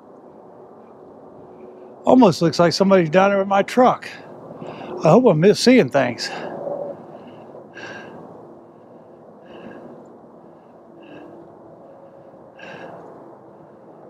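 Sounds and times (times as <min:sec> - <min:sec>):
man breathing hard: 0:04.2 - 0:05.0, 0:06.2 - 0:14.0.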